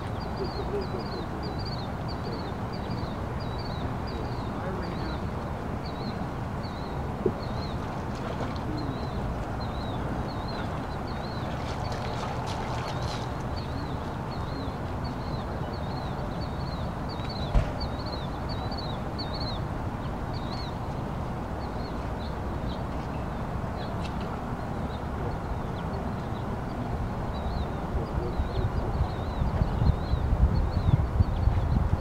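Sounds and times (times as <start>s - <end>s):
outdoor background hum: 0.0s - 32.0s
sharp knock: 17.5s - 17.8s.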